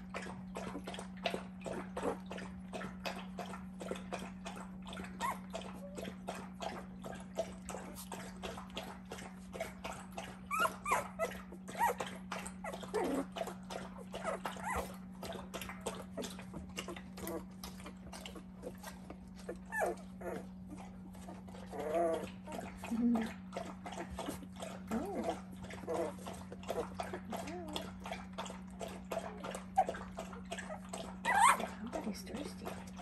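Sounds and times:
puppies whimpering and squeaking: 5.0s - 8.4s, 9.6s - 28.3s, 28.9s - 32.4s.

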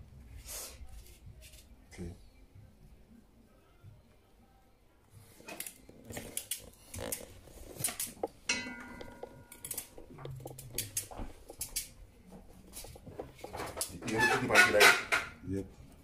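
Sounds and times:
metal pans clattering: 7.9s - 11.7s, 13.1s - 15.4s
ringing metallic clang: 8.5s - 10.0s.

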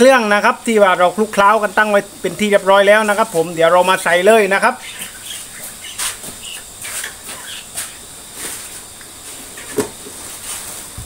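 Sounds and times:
gas burner hissing: 0.0s - 11.0s.

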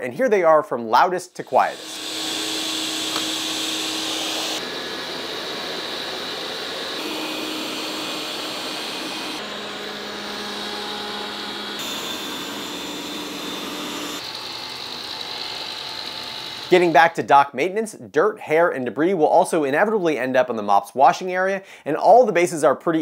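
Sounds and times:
robot vacuum fan rush and whine: 1.4s - 16.7s.

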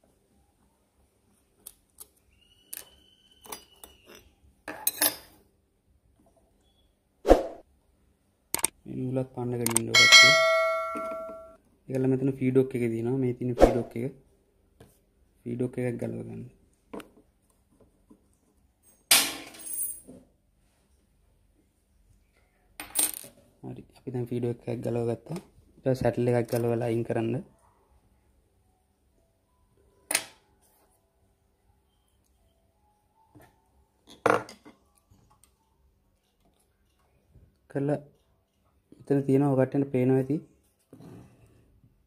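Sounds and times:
metal part clinking on hard surface: 10.0s - 11.6s
short high ring: 10.0s - 11.6s.

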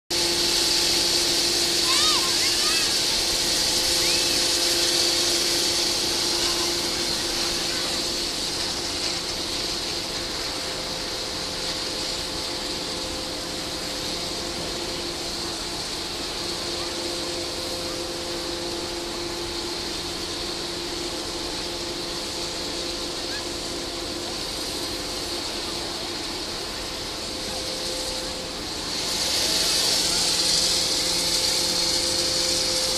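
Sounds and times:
machinery hiss: 0.1s - 32.9s
machinery hum: 0.1s - 32.9s.

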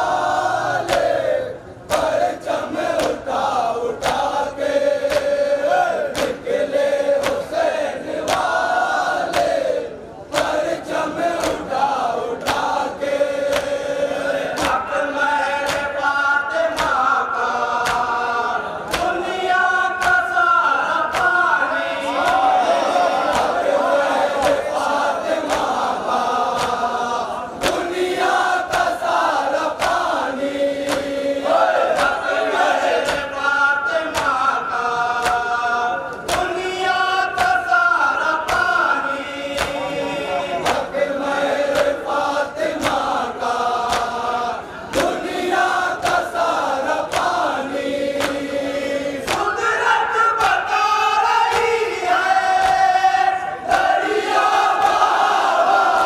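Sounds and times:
men chanting a lament: 0.0s - 56.0s
person reciting into a microphone: 0.0s - 56.0s
hands slapping chests: 0.8s - 1.2s, 1.9s - 2.2s, 3.0s - 4.4s, 5.0s - 6.4s, 7.1s - 7.6s, 8.2s - 8.6s, 9.2s - 9.6s, 10.3s - 10.7s, 11.3s - 12.8s, 13.5s - 13.8s, 14.5s - 14.8s, 15.6s - 15.9s, 16.7s - 17.0s, 17.8s - 18.2s, 18.8s - 19.2s, 20.0s - 20.3s, 21.0s - 21.4s, 23.3s - 23.7s, 24.4s - 25.8s, 26.5s - 26.9s, 27.6s - 30.2s, 30.8s - 32.2s, 33.0s - 33.3s, 34.1s - 34.5s, 35.2s - 36.6s, 37.4s - 37.7s, 38.4s - 38.8s, 39.5s - 40.0s, 40.6s - 41.0s, 41.6s - 42.1s, 42.7s - 43.2s, 43.8s - 44.2s, 44.9s - 47.6s, 48.2s - 48.6s, 49.2s - 49.6s, 51.4s - 51.8s, 52.6s - 52.9s.

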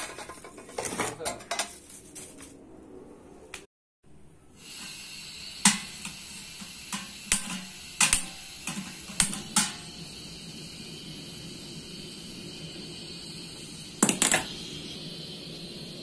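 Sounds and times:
gas hissing from burner: 4.3s - 16.0s
gas lighter clicking: 5.6s - 9.9s.

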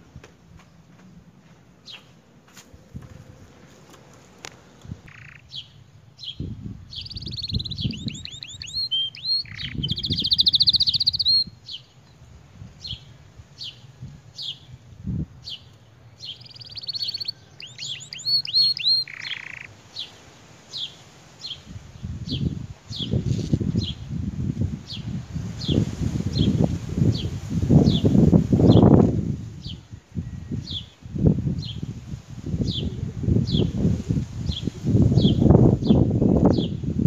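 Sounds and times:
canary singing: 5.0s - 12.0s, 15.4s - 20.2s.

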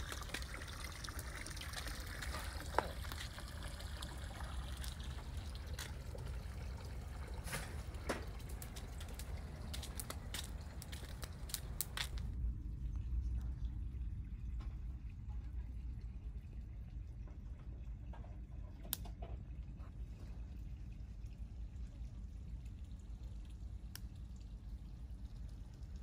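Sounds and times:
steady low rumble: 3.0s - 17.6s
wood fire crackling and popping: 7.3s - 12.4s.

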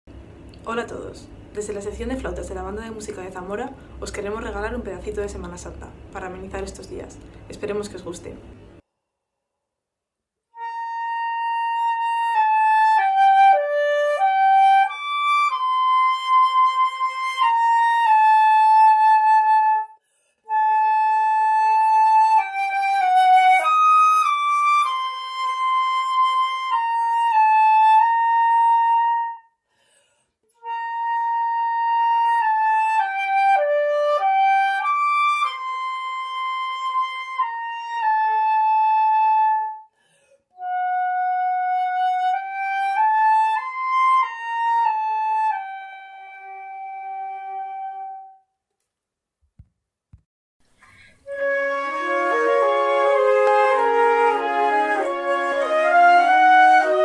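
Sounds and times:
flutes playing slow melody: 10.5s - 29.5s, 30.5s - 39.9s, 40.6s - 48.4s, 51.2s - 57.0s.

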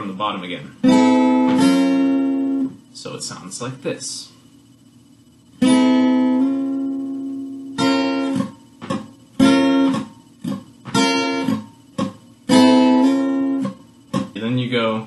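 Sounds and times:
acoustic guitar strumming chords: 0.0s - 2.8s, 5.6s - 14.6s.

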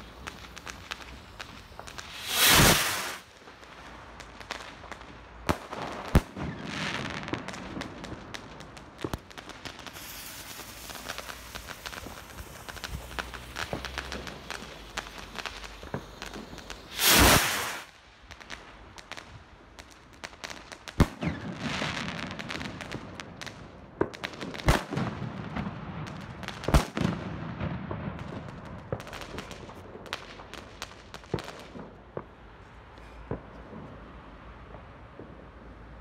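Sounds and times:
firework launch whoosh: 0.0s - 3.3s, 9.9s - 17.9s
firework bangs: 0.0s - 19.2s, 19.8s - 32.4s
firework crackling: 0.0s - 32.4s.

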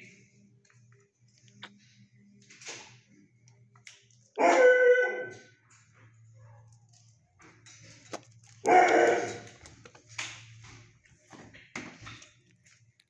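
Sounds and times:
dog howling bark: 4.4s - 5.5s, 8.6s - 9.6s.

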